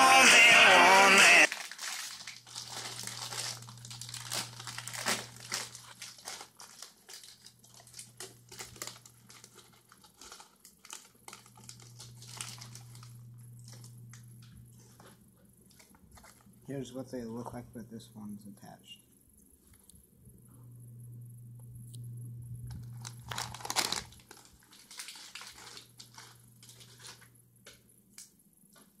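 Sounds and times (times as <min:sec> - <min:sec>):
plastic snack bag crinkling: 0:01.5 - 0:16.6, 0:22.7 - 0:27.4.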